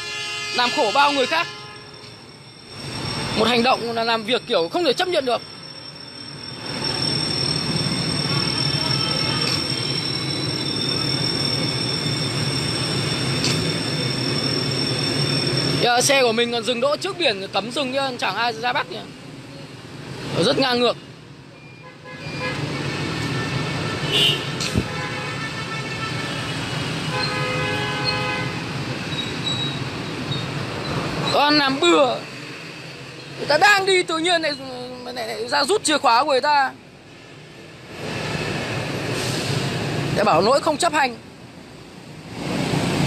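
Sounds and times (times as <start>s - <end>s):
vehicle horn: 0.0s - 2.0s, 21.8s - 28.7s
street traffic rumble: 0.0s - 43.0s.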